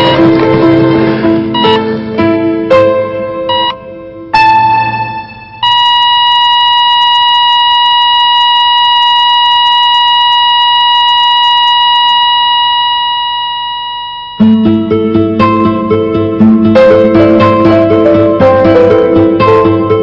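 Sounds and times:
heart monitor flatline tone: 0.0 - 0.4, 1.6 - 1.9, 3.5 - 3.8, 5.6 - 14.8.

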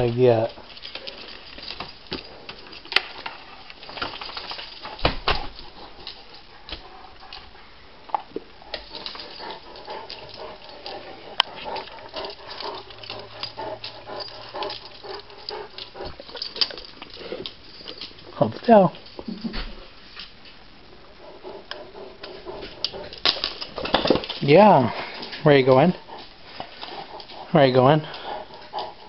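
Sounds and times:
dog paws pattering on hard floor: 0.0 - 20.6.

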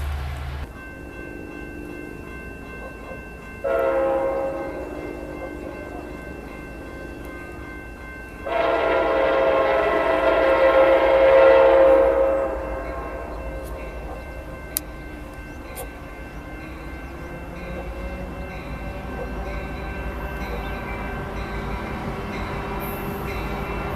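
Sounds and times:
train horn blast: 3.6 - 6.2, 8.4 - 14.1.

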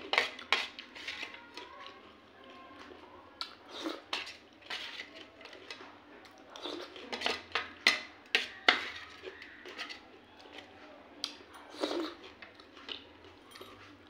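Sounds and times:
metal spoon scraping steel plate: 0.0 - 1.4, 3.7 - 5.2, 6.8 - 10.0
eating sounds: 0.0 - 14.0.

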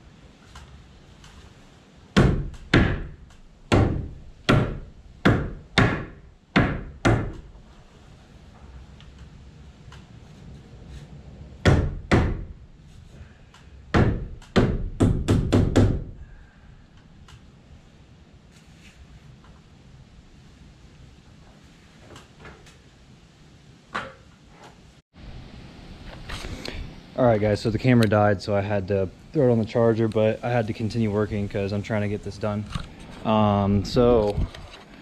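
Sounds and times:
hammer striking wood: 2.2 - 7.5, 11.6 - 12.5, 13.9 - 16.1.

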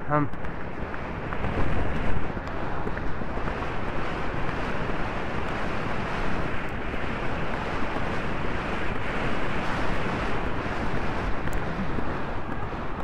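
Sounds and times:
wind roaring over microphone: 0.0 - 13.0.

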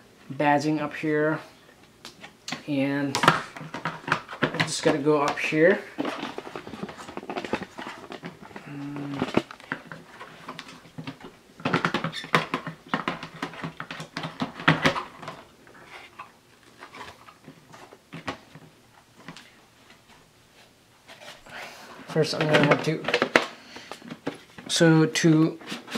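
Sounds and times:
plastic vacuum parts knocking: 3.1 - 5.4, 6.0 - 15.4.

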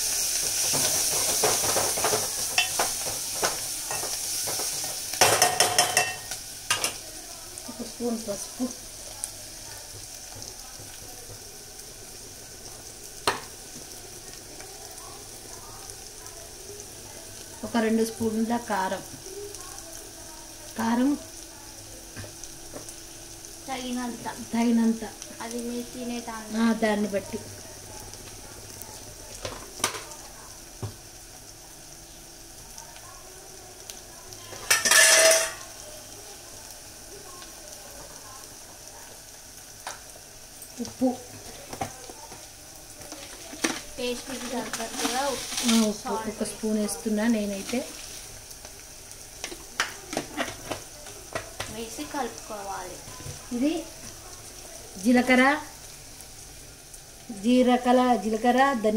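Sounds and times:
onions sizzling in oil: 0.0 - 58.9.

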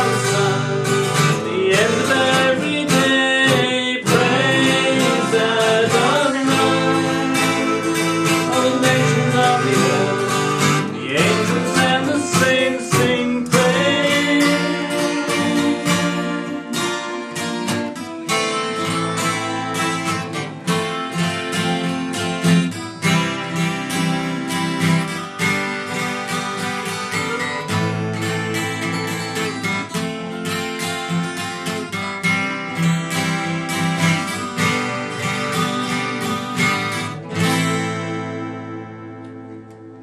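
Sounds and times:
acoustic guitar strumming: 0.0 - 40.0.

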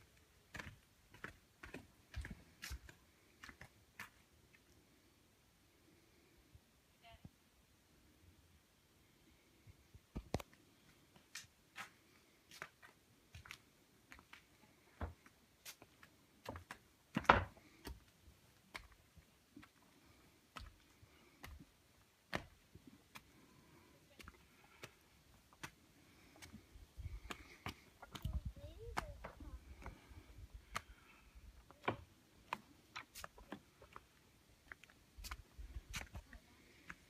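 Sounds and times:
footsteps on stone slabs: 0.0 - 4.7, 10.1 - 37.0.

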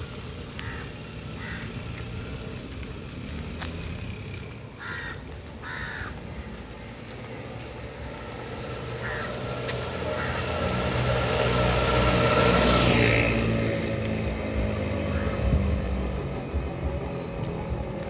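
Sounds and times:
vehicle engine passing by: 0.0 - 18.0
crow cawing: 0.6 - 1.8, 4.8 - 6.4, 9.0 - 9.5, 10.1 - 10.6, 15.1 - 15.5.

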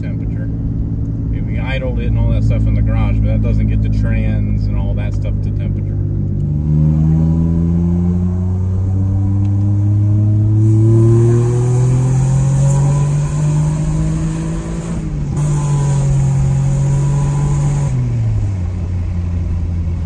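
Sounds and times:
car engine accelerating: 0.0 - 20.0.

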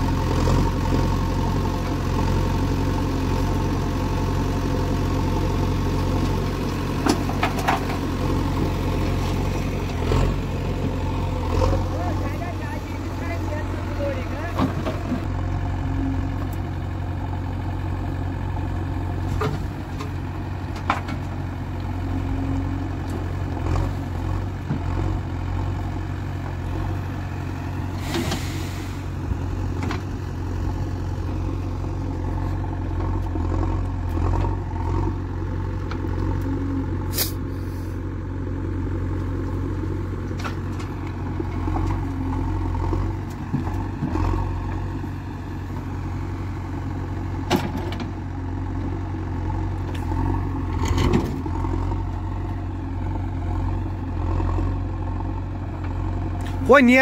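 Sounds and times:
diesel engine running: 0.0 - 57.0
brief hiss: 28.0 - 29.0, 37.1 - 38.0.

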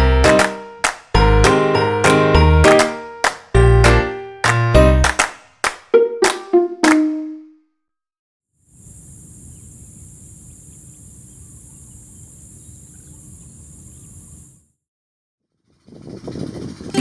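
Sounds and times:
insect chorus: 8.6 - 14.7
faint bird chirps: 8.8 - 14.5.

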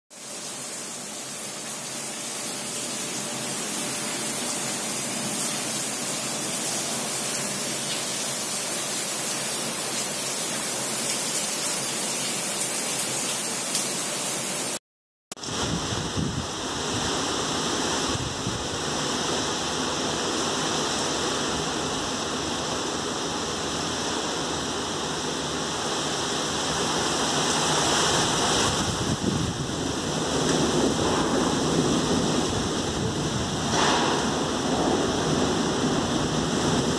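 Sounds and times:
heavy rain pouring: 0.1 - 14.8, 15.4 - 36.9
strong wind gusting: 15.4 - 19.2, 27.8 - 36.9.

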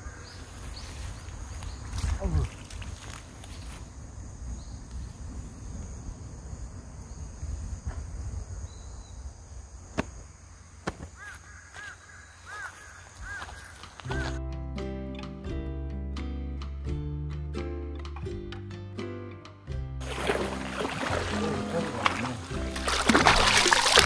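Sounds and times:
wind rumble on microphone: 1.2 - 9.7
acoustic guitar music: 14.1 - 24.0.

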